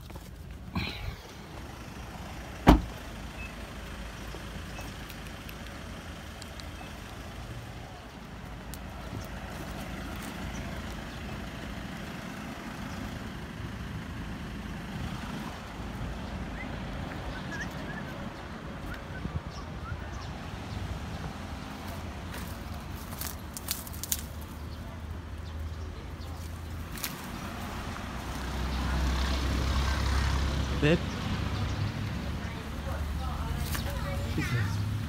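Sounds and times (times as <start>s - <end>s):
car door slamming: 2.6s - 3.0s.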